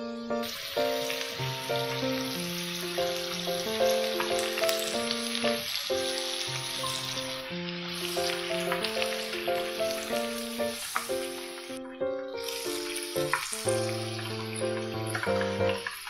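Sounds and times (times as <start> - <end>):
light melodic music: 0.0 - 16.0
oil sizzling and crackling: 0.3 - 16.0.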